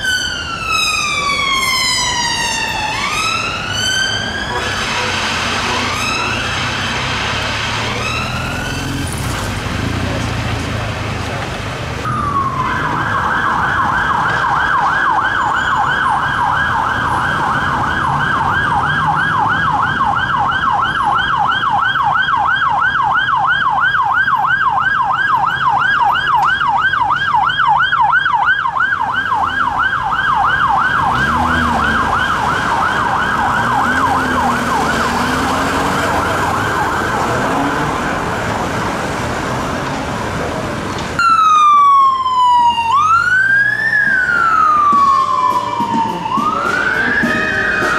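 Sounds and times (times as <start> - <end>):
siren on a fast yelp: 0.0 - 4.8, 12.1 - 38.3, 41.2 - 47.9
siren on a slower wail: 0.0 - 6.8, 7.7 - 9.2, 12.0 - 38.8, 41.2 - 47.9.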